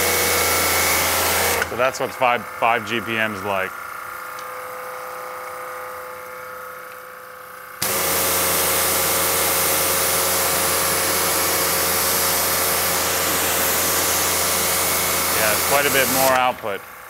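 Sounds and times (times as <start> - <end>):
pressure washer motor humming: 0.0 - 6.5, 7.8 - 17.0
high-pressure water jet hissing: 7.8 - 16.8.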